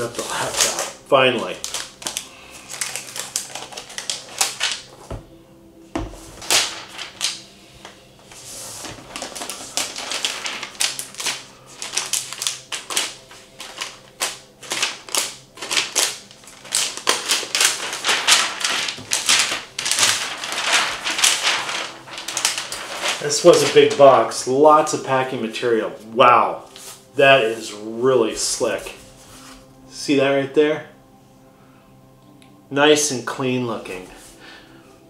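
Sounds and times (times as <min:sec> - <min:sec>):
plastic wrap crinkling: 0:00.0 - 0:05.0, 0:06.4 - 0:24.6.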